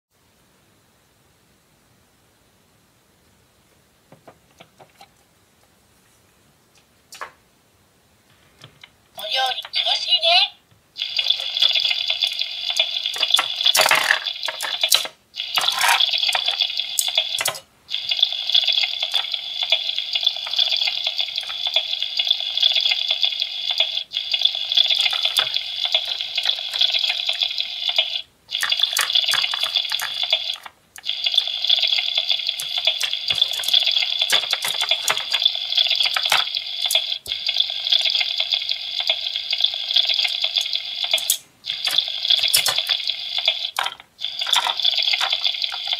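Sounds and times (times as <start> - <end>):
recorded frying sizzle from toy speaker: 8.8 - 45.9
plastic toy clacks: 11.0 - 45.9.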